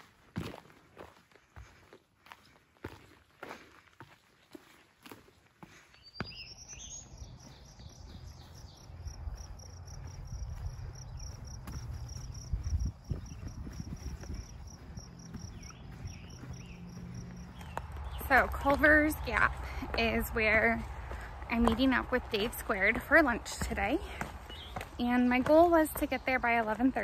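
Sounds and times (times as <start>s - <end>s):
footsteps on rocky trail: 0.0s - 27.0s
wind rumbling on microphone: 7.2s - 25.0s.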